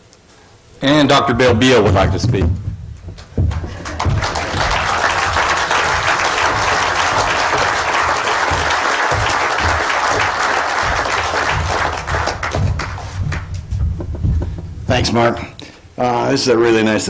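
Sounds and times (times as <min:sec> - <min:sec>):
audience applauding: 0:03.2 - 0:14.6.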